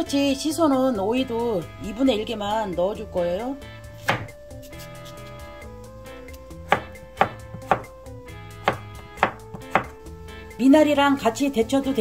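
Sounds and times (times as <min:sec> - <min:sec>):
knife chopping on wooden board: 0:04.0 - 0:04.4, 0:06.7 - 0:08.0, 0:08.6 - 0:10.0.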